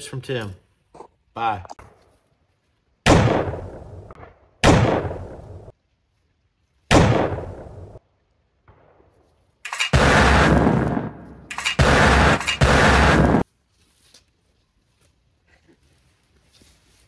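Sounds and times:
distant gunshots echoing: 0:03.0 - 0:05.7, 0:06.9 - 0:08.0, 0:09.7 - 0:13.4.

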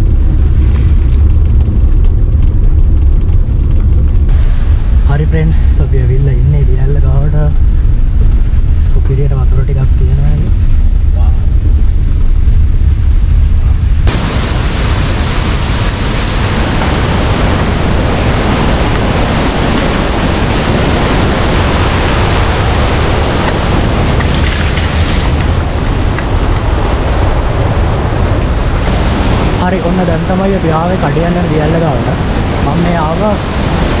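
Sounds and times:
low rumble inside car: 0:00.0 - 0:34.0
waterfall roaring: 0:13.6 - 0:34.0.

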